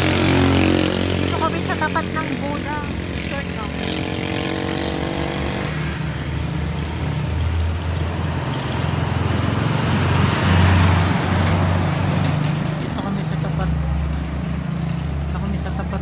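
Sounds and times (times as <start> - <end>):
motorcycles passing: 0.0 - 16.0
truck going by: 0.0 - 16.0.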